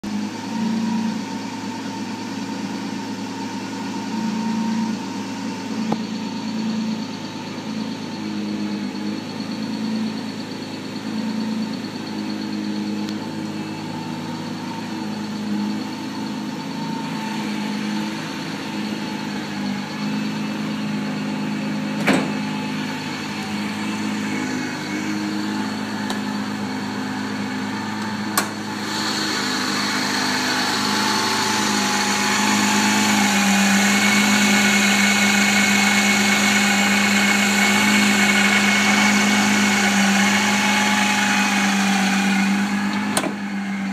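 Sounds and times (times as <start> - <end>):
car engine idling: 0.0 - 43.9.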